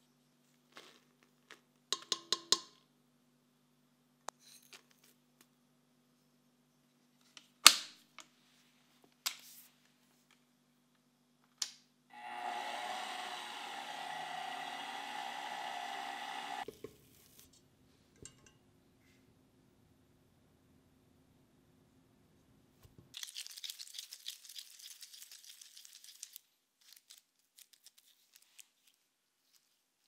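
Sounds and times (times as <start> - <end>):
stand mixer motor running: 12.2 - 16.6.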